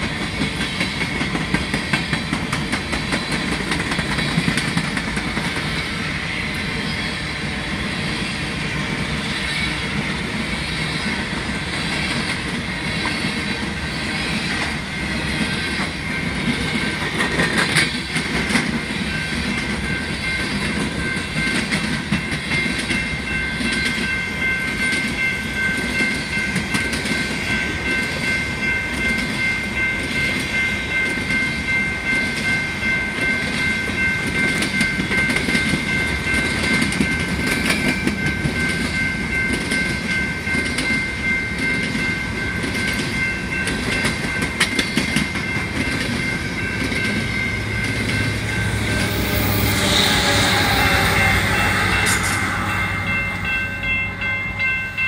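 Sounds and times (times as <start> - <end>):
train wheels clacking: 0.0 - 55.0
high-pitched ring: 19.0 - 55.0.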